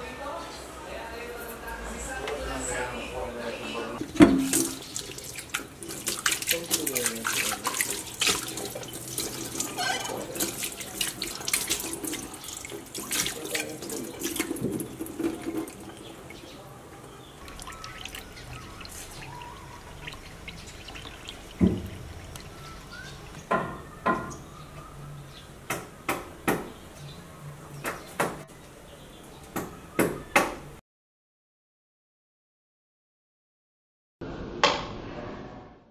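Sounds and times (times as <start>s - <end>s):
tap water running into sink: 4.0s - 16.4s, 17.4s - 23.6s
thump: 21.6s - 21.9s
sharp knocks: 21.6s - 22.1s.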